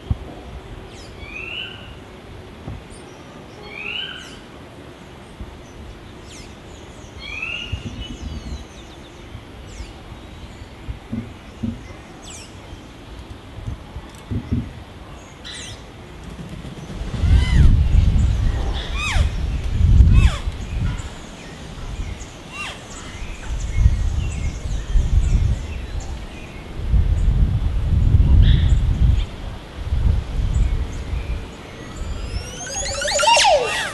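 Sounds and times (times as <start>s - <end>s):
wind rumble on microphone: 0.0s - 3.0s, 7.1s - 12.0s, 12.7s - 15.0s, 16.3s - 32.7s
oropendolas calling: 31.0s - 33.9s
thin high whistled bird notes: 31.7s - 33.9s.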